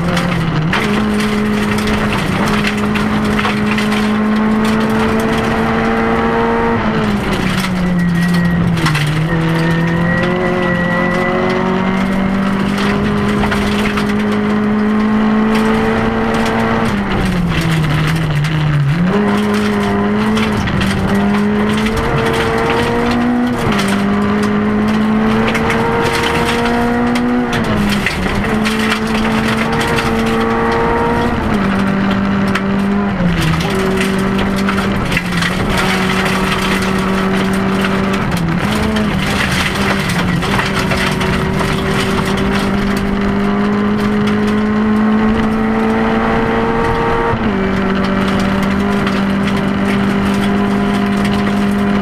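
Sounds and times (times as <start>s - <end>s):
gravel pattering on car underside: 0.0s - 52.0s
rally car engine at high revs: 0.0s - 52.0s.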